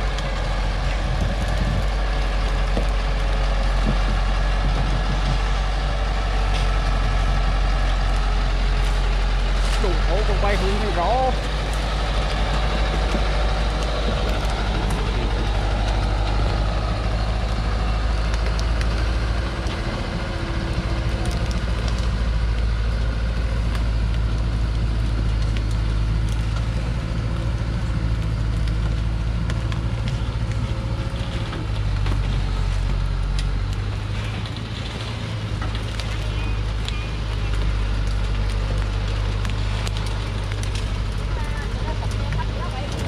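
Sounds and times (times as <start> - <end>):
branches cracking under tyres: 0.0 - 43.0
truck diesel engine under load: 0.0 - 43.0.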